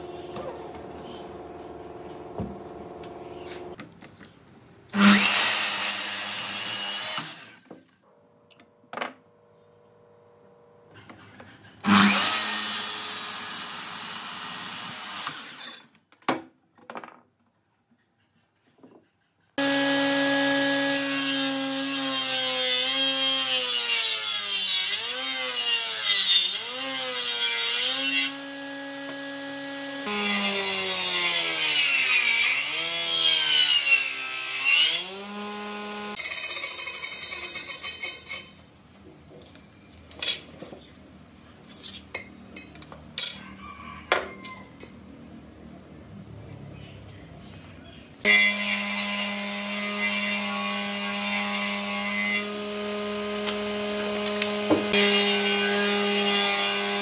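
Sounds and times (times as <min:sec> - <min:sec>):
miter saw cutting wood: 0:05.0 - 0:07.6, 0:11.8 - 0:15.8, 0:19.6 - 0:36.2, 0:48.3 - 0:57.0
table saw running: 0:19.6 - 0:24.1, 0:24.8 - 0:36.2, 0:48.3 - 0:57.0.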